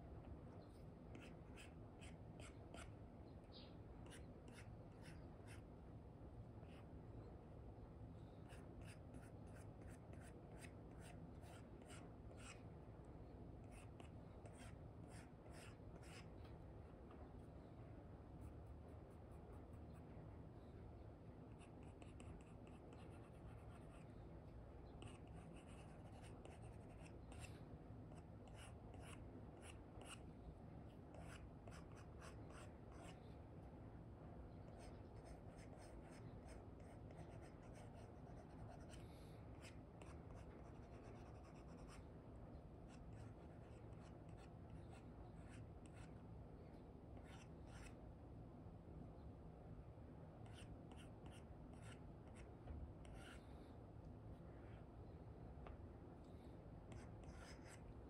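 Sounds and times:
low steady hum: 0.0 - 58.0
stylus scratching and tapping screen: 39.6 - 42.1, 56.9 - 57.9.

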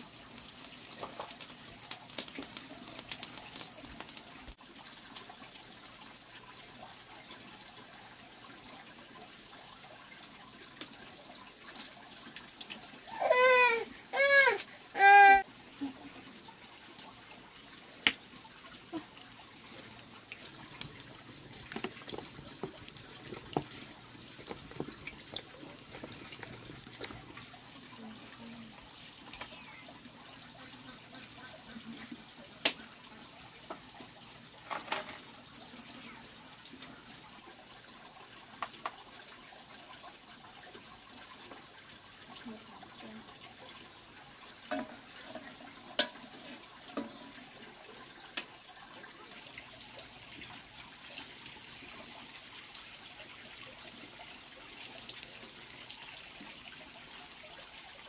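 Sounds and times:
wood fire crackling: 0.0 - 6.9, 10.6 - 13.0, 15.7 - 29.6.

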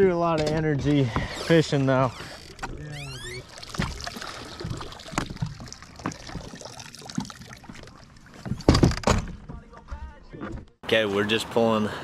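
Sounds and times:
water trickling and dripping: 2.3 - 8.7.

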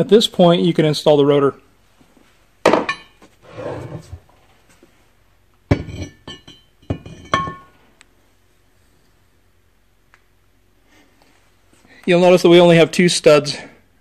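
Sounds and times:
metal scraping: 3.4 - 4.3.

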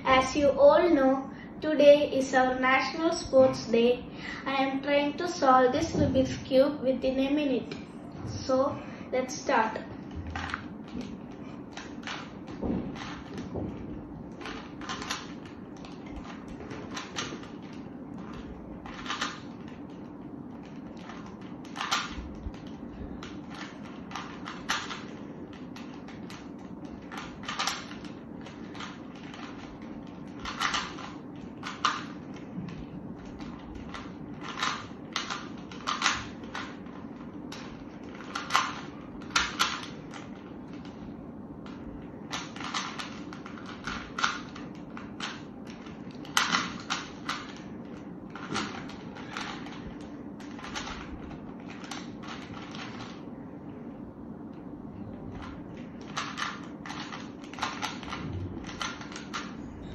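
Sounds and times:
low hum: 7.5 - 59.9
puzzle cube clicking: 14.3 - 41.0, 41.6 - 49.8, 50.4 - 53.2, 55.3 - 59.5.

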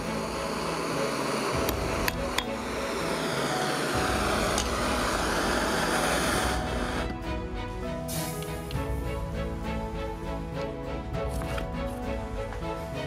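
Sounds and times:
blowtorch flame hissing: 0.0 - 7.4, 8.0 - 9.8.

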